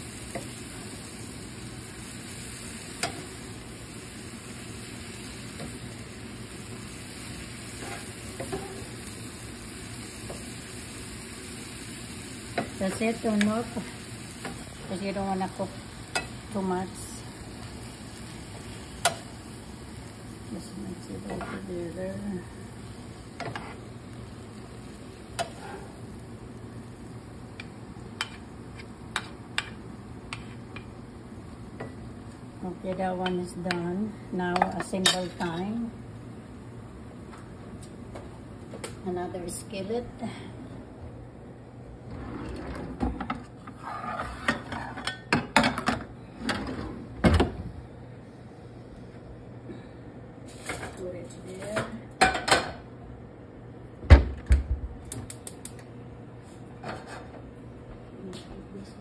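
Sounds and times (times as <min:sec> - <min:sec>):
utensils stirring in a skillet: 0:00.0 - 0:26.8, 0:27.5 - 0:31.1, 0:31.8 - 0:35.8, 0:43.3 - 0:45.5
drawer sliding: 0:42.0 - 0:44.5.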